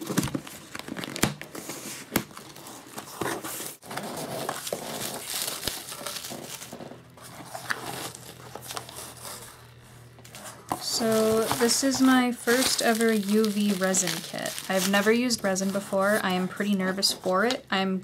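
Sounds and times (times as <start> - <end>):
bubble wrap crinkling: 0.0 - 17.6.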